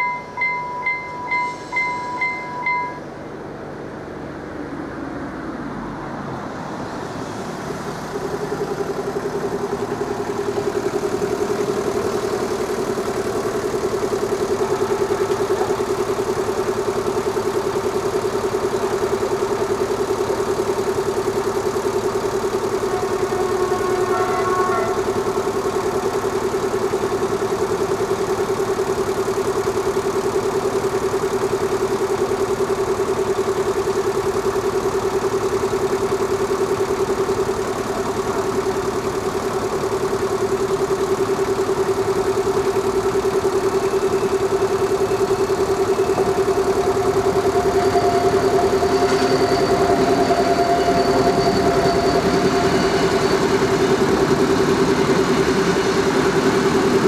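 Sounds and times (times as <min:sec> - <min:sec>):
level crossing warning bell ringing: 0:00.0 - 0:03.4, 0:09.5 - 0:57.0
approaching train: 0:00.0 - 0:27.4, 0:43.9 - 0:57.0.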